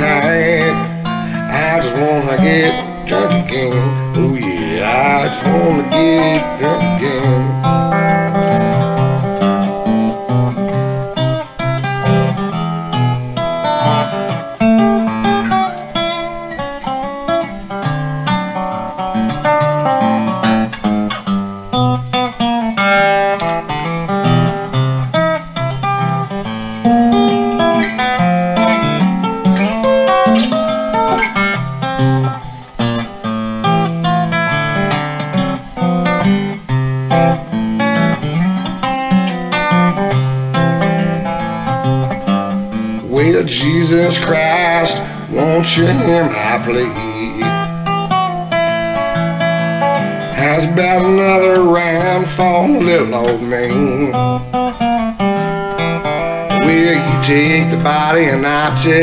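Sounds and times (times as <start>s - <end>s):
acoustic guitar strumming chords: 0.0s - 59.0s.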